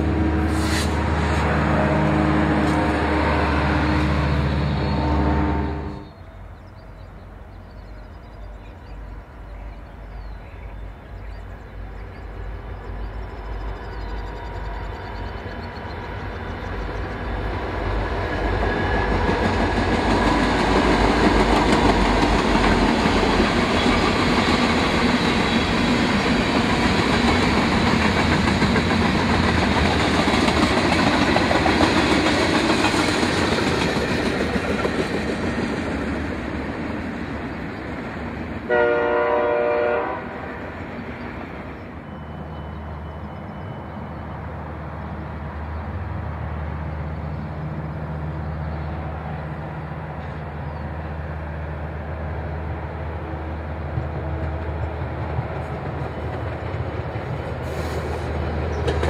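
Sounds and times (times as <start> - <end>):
diesel locomotives running: 0.0 - 59.0
train wheels clattering on rails: 13.0 - 38.6, 53.6 - 59.0.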